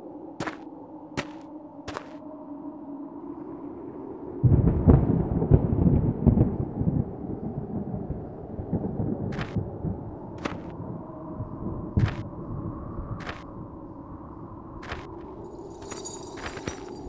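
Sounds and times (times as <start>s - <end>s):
low steady drone: 0.0s - 17.0s
thunder rumbling: 4.2s - 15.4s.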